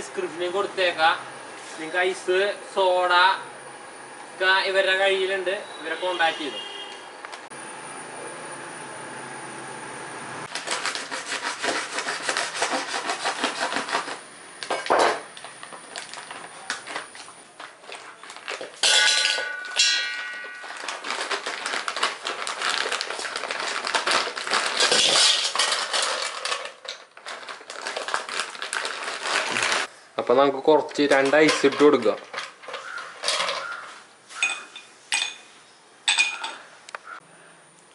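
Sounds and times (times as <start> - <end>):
knife cutting plastic bag: 10.5 - 14.2, 20.5 - 29.9, 32.8 - 33.0
ice cubes clattering into metal tin: 17.9 - 29.9, 30.9 - 34.6.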